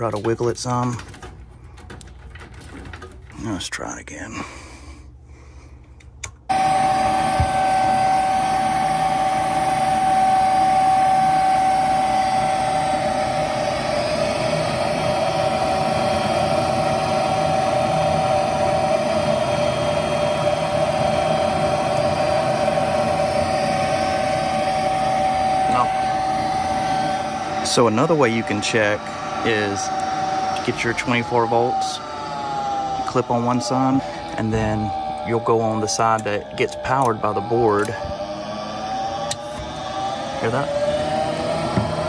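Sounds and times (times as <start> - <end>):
furnace motor whining: 0.0 - 42.0.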